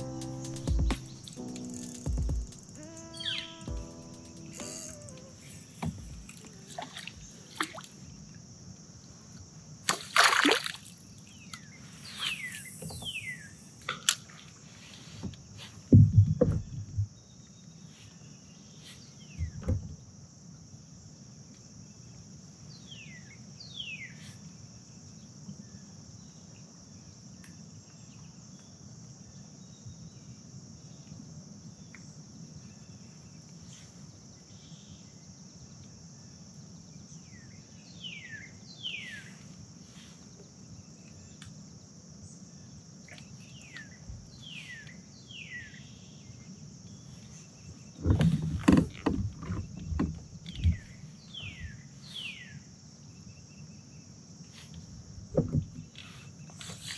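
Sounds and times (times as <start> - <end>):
downward-sweeping bird calls: 0.0 - 7.1, 11.6 - 13.6
insect chorus: 0.0 - 56.9.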